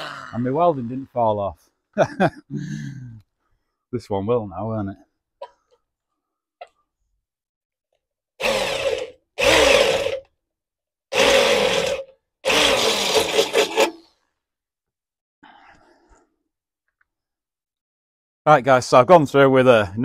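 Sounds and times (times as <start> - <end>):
electric drill boring through steel: 8.4 - 10.3, 11.1 - 14.1.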